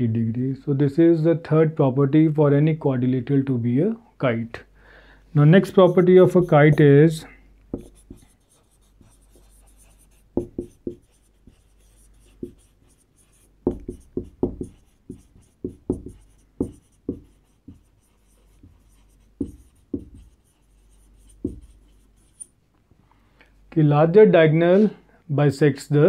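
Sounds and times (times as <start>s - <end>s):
marker pen writing on whiteboard: 5.6s - 6.9s, 7.7s - 22.6s.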